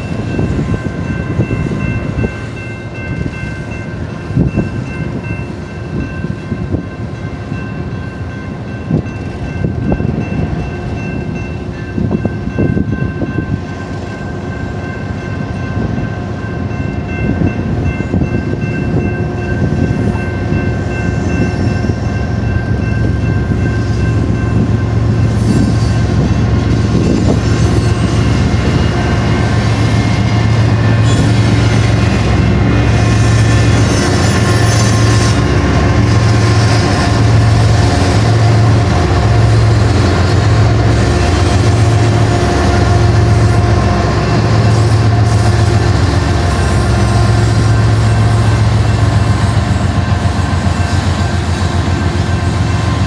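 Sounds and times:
crossing warning bell ringing: 0.0 - 53.0
diesel locomotive hum: 0.0 - 53.0.

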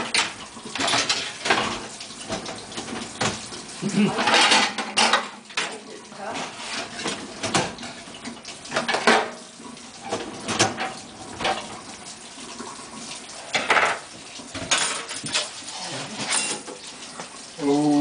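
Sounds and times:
plates and pan clattering: 0.0 - 5.8, 8.7 - 9.4, 13.5 - 16.9
tap water running: 0.0 - 18.0.

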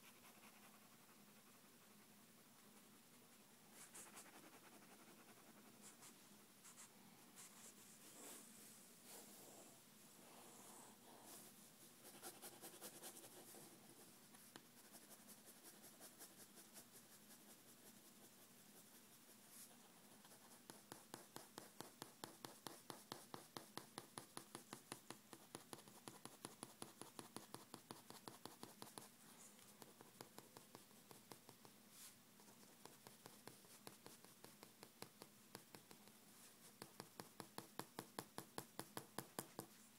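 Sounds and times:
pen scratching on paper: 18.8 - 24.7, 25.3 - 29.1, 29.8 - 31.6.

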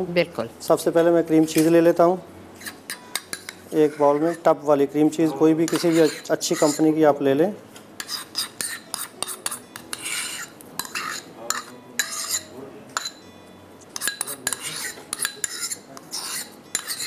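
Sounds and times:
metal spoon scraping bowls: 2.6 - 7.0, 8.0 - 13.2, 13.9 - 17.0.

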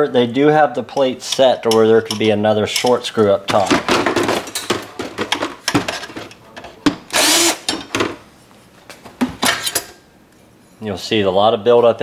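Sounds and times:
metal parts and tools clattering: 1.0 - 6.8, 9.4 - 10.0
cordless drill spinning: 7.1 - 7.7.

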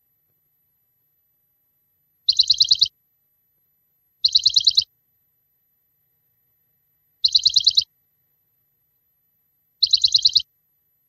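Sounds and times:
bird chirp trill: 2.2 - 3.0, 4.2 - 5.0, 7.1 - 8.0, 9.8 - 10.5.

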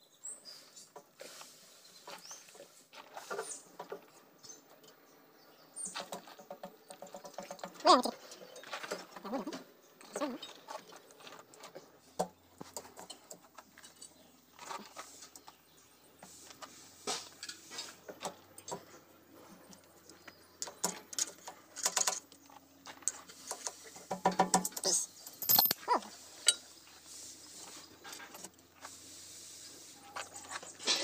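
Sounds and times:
steel chain links clinking: 24.6 - 26.6.

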